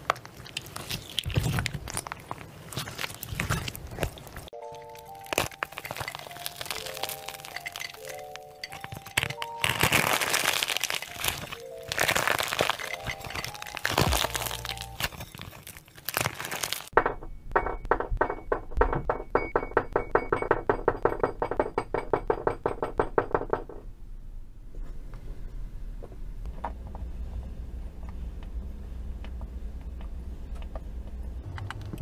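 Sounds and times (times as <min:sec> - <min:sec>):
crumbly block crunching by hand: 0:00.0 - 0:17.0
clay balls knocking into glass: 0:16.9 - 0:23.8.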